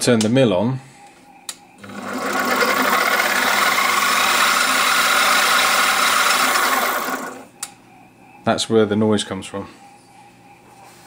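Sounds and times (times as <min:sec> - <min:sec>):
machine motor whirring: 0:01.8 - 0:07.5.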